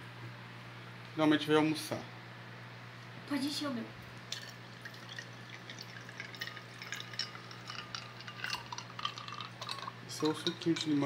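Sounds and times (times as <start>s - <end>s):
ice clicking against glass: 4.3s - 11.0s
liquid splashing into glass: 4.3s - 11.0s.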